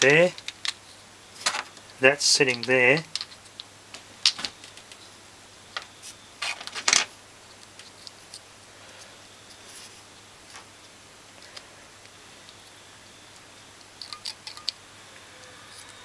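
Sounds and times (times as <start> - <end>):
small parts clicking: 0.2 - 0.8, 2.5 - 5.0, 13.3 - 14.8.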